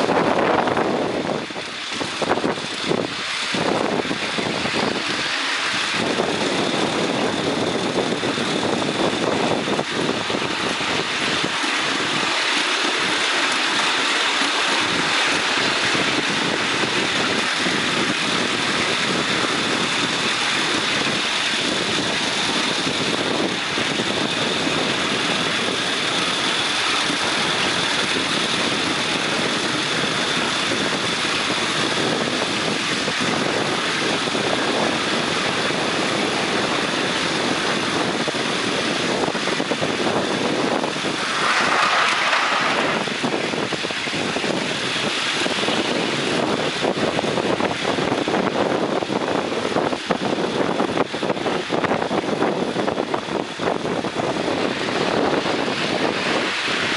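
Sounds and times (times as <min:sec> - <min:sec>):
miniature steam locomotive running: 0:00.0 - 0:56.9
thin high steam hiss: 0:40.9 - 0:43.8.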